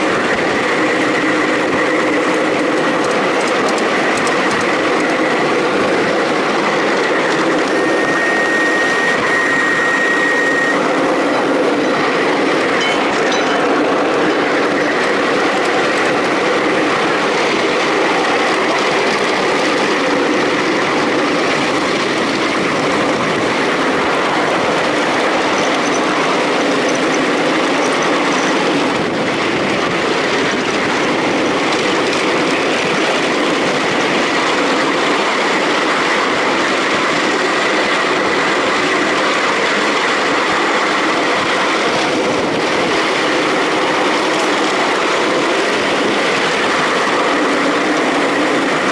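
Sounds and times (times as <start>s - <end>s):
miniature train wheels rattling: 0.0s - 48.9s
faint high whine: 7.1s - 14.2s.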